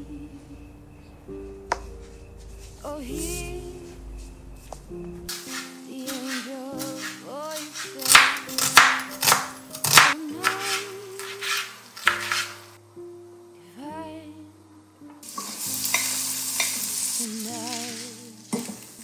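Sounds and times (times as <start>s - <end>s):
soft instrumental music: 0.0s - 19.0s
knife slicing onion on wooden board: 5.3s - 12.7s
onions sizzling in oil: 15.2s - 19.0s.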